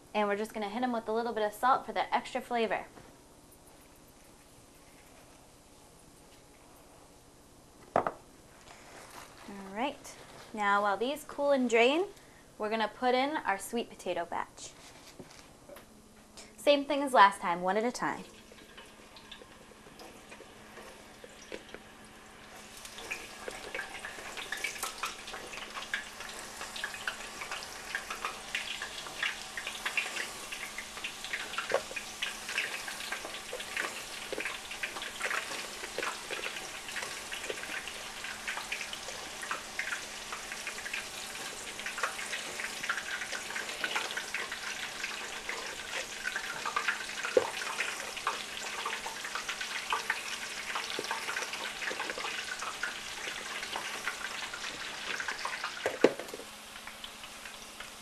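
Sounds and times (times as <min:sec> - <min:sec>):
hot oil sizzling and crackling: 0:16.6 - 0:58.0.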